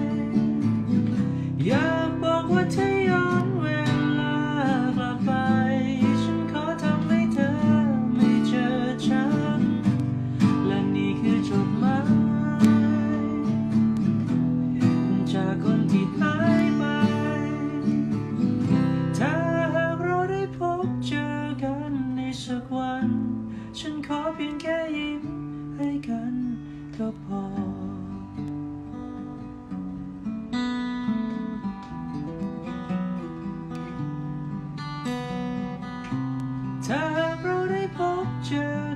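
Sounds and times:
man singing slow song: 0.0s - 28.6s, 36.7s - 38.9s
strummed acoustic guitar: 0.0s - 38.9s.

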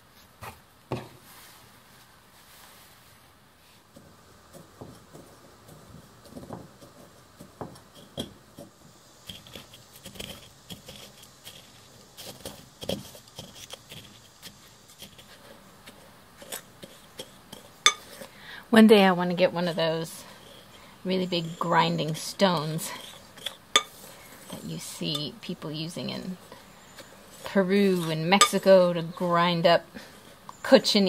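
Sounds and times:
pestle crushing brittle flakes: 4.0s - 18.7s, 19.3s - 29.2s.

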